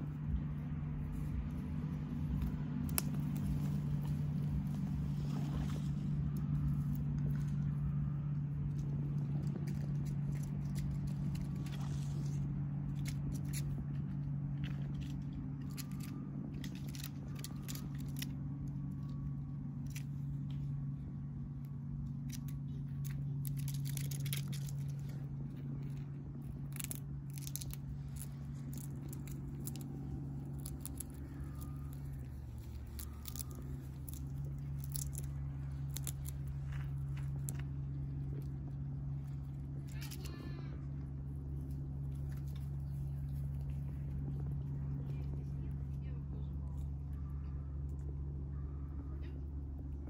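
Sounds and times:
squirrel claws scratching bark: 0.0s - 48.2s
steady low hum: 0.0s - 50.0s
teeth gnawing on nut: 22.1s - 40.4s.

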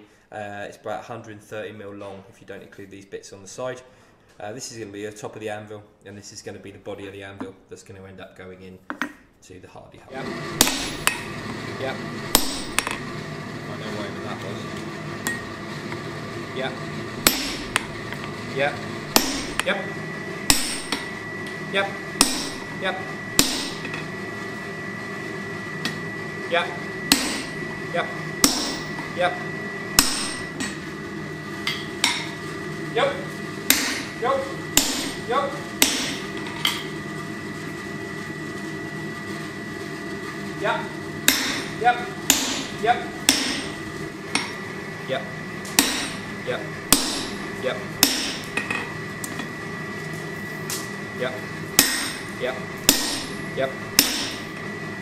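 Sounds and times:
steady hum: 10.1s - 55.0s
hammer blows on anvil: 10.6s - 11.3s, 12.3s - 13.1s, 17.2s - 17.9s, 19.1s - 19.8s, 20.4s - 21.2s, 22.2s - 24.1s, 27.0s - 27.7s, 28.4s - 29.2s, 29.9s - 30.8s, 31.6s - 32.4s, 33.7s - 36.9s, 41.3s - 44.7s, 45.7s - 48.9s, 51.8s - 54.6s.

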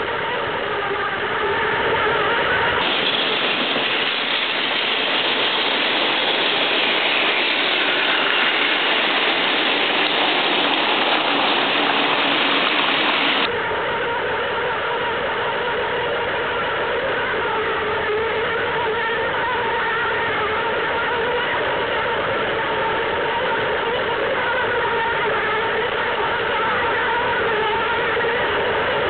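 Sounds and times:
steady hum: 0.0s - 29.0s
toy train motor whirring and clattering: 2.8s - 13.5s.

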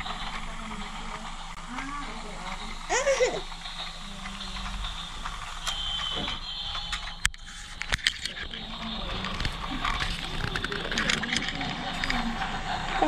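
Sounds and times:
toy train motor whirring: 0.0s - 13.0s
toy train clicks when handled: 1.8s - 12.5s.

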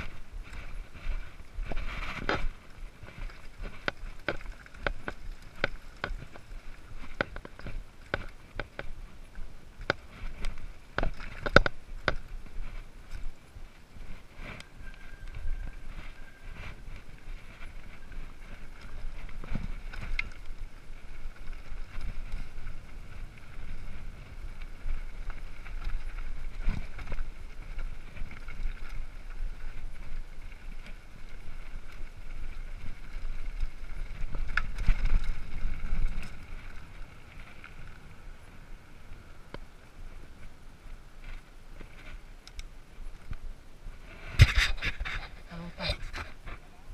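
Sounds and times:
bike rattling and knocking: 0.0s - 9.1s, 9.7s - 13.3s, 15.0s - 38.0s
bike tyres on rocky trail: 0.0s - 46.9s.

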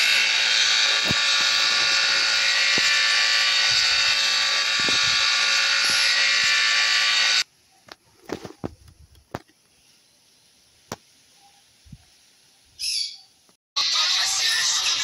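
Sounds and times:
whirring buzz: 0.0s - 7.4s.

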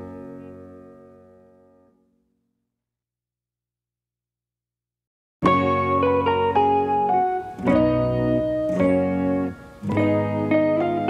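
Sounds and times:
faint background music: 0.0s - 1.9s, 5.4s - 11.0s.

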